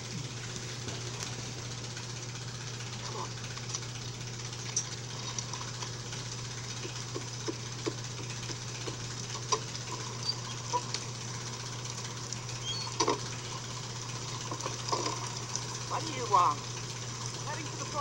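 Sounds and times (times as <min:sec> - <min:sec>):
low hum: 0:00.0 - 0:18.0
heavy rain: 0:05.1 - 0:18.0.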